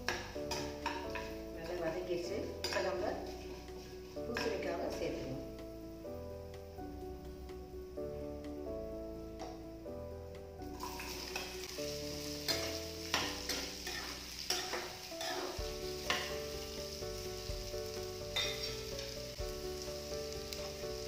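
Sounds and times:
metal spatula scraping pan: 0:00.1 - 0:01.8, 0:12.3 - 0:16.5
food frying in hot oil: 0:10.7 - 0:21.0.

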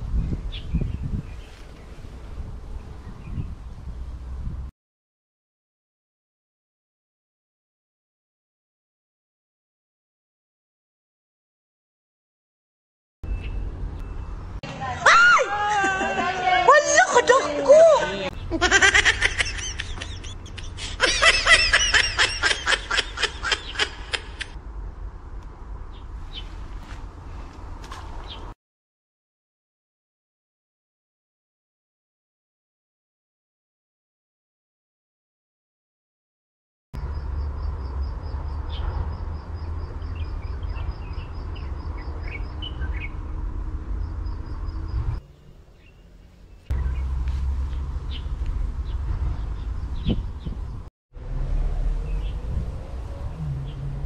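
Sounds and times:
birds chirping: 0:13.3 - 0:14.6, 0:17.2 - 0:24.6, 0:25.9 - 0:26.6, 0:28.2 - 0:28.6, 0:38.2 - 0:43.4, 0:44.0 - 0:50.8, 0:51.5 - 0:54.0
high-pitched laughter: 0:15.5 - 0:17.0, 0:18.5 - 0:24.6.

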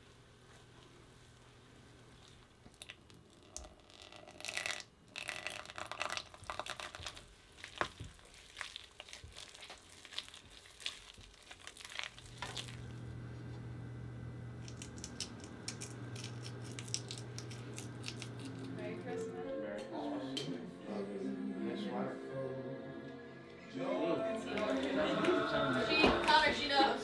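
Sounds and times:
hands kneading crumbly dough: 0:05.4 - 0:12.9
low hum: 0:12.2 - 0:27.0.

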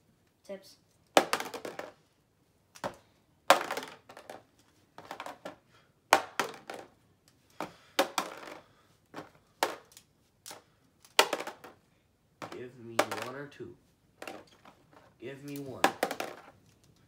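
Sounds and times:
plastic die clattering and bouncing: 0:01.1 - 0:02.0, 0:02.8 - 0:07.0, 0:09.2 - 0:11.8, 0:12.4 - 0:13.4, 0:15.4 - 0:16.7.

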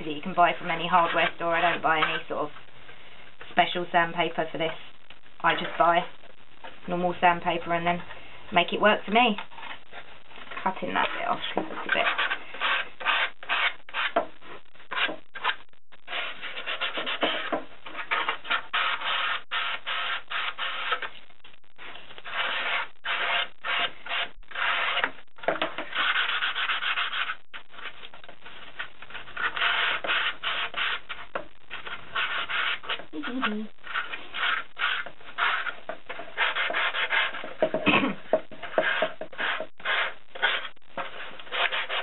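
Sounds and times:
sandpaper rubbing cardboard: 0:11.4 - 0:14.3, 0:14.9 - 0:21.1, 0:21.8 - 0:37.7, 0:38.6 - 0:42.0.

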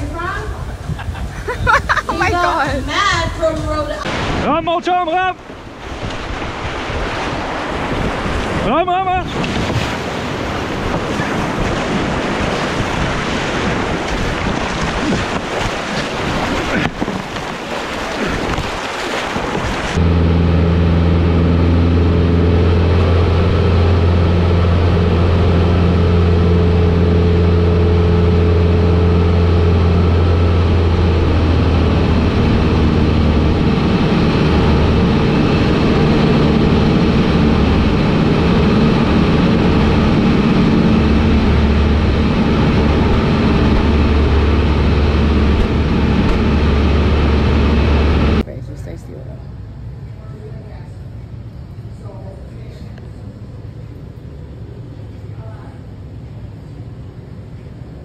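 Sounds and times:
rapids rushing and splashing: 0:05.4 - 0:20.1, 0:21.2 - 0:48.4
light aircraft engine drone: 0:19.9 - 0:58.0.

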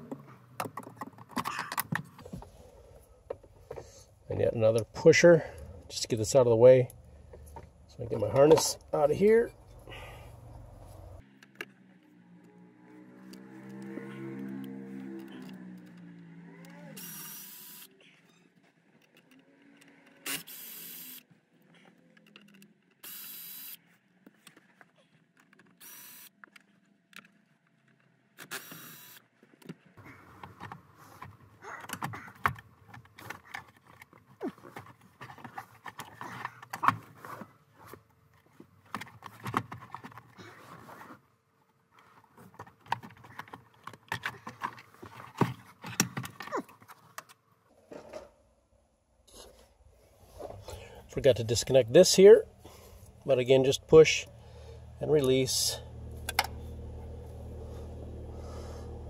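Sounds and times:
cordless power tool bursts: 0:20.2 - 0:21.2.

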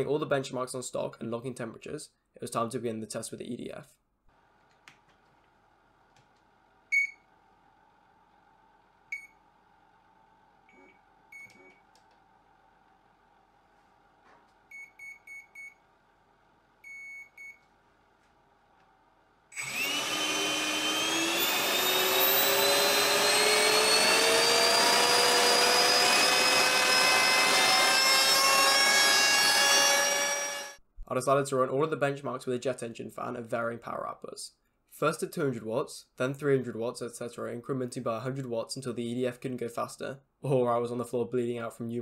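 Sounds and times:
electric fan whine rising: 0:19.5 - 0:30.8.

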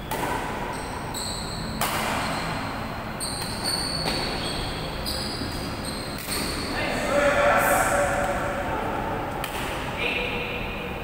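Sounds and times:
racket hitting shuttlecock: 0:00.0 - 0:00.8, 0:01.7 - 0:02.4, 0:06.2 - 0:06.6, 0:09.3 - 0:09.9.

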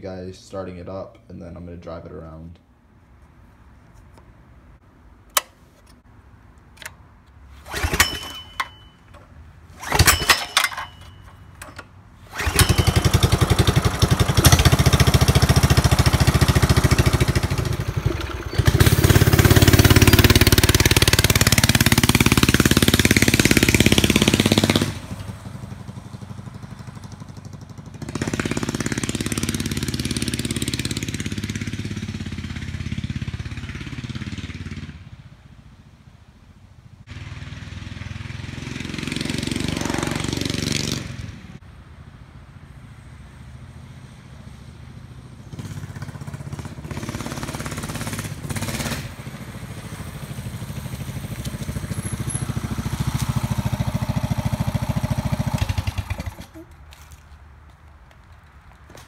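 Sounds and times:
small engine starting and revving: 0:07.5 - 0:35.1, 0:37.1 - 0:41.6, 0:44.9 - 0:57.2.

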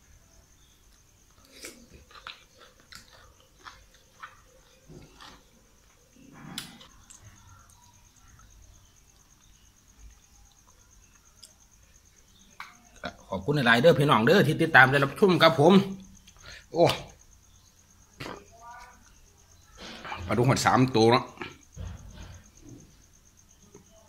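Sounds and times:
person chewing: 0:01.2 - 0:07.7.

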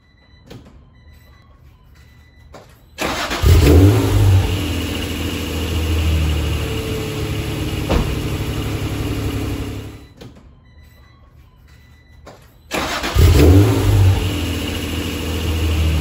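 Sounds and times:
car engine starting and idling: 0:03.0 - 0:10.1, 0:12.7 - 0:16.0.

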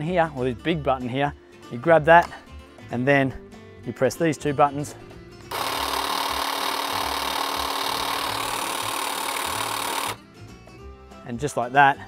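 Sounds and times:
hedge trimmer whirring: 0:05.5 - 0:10.2.

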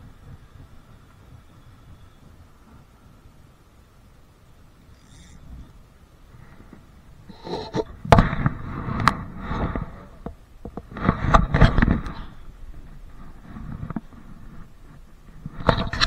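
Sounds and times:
rumbling rustle: 0:00.0 - 0:16.0.

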